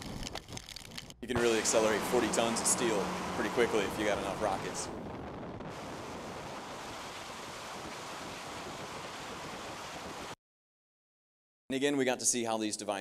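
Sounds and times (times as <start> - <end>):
rocket motors rushing: 0.0 - 10.2.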